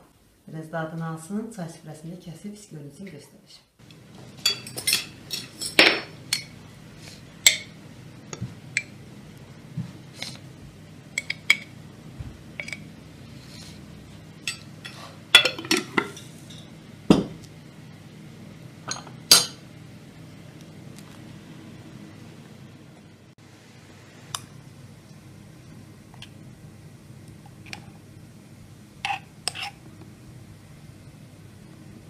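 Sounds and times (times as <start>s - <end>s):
china cups and saucers clinking: 4.4s - 6.6s, 14.4s - 17.3s.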